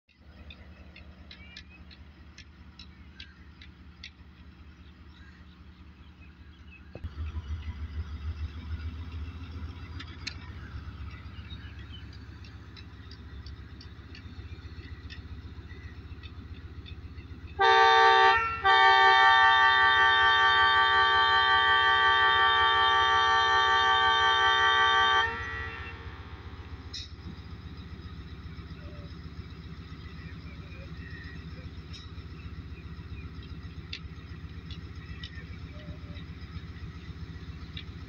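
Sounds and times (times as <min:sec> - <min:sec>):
diesel engine rumbling: 0:00.1 - 0:38.0
locomotive horn blasts: 0:17.5 - 0:26.6.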